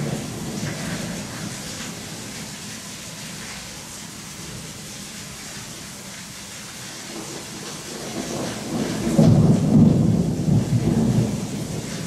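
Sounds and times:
thunder rumbling: 0.0s - 1.3s, 7.9s - 12.0s
rain hiss: 0.0s - 12.0s.

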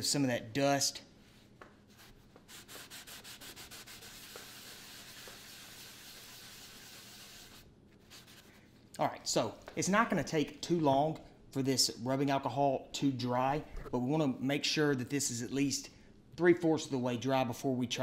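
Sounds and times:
cloth rubbing on wood: 1.2s - 8.6s.

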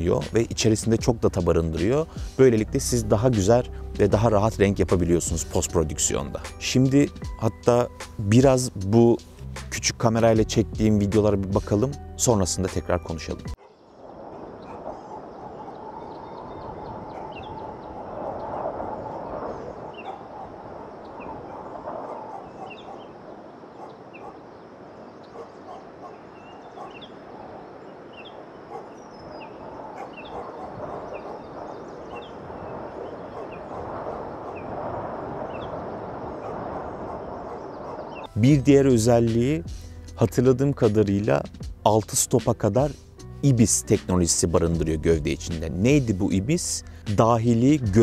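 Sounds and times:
bird chirps: 13.6s - 34.8s, 35.4s - 38.4s.

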